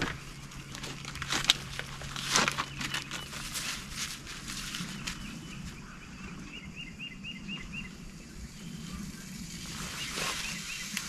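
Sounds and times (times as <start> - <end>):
camp cooking gear clattering: 0.0 - 5.2
small bird chirping: 0.0 - 11.0.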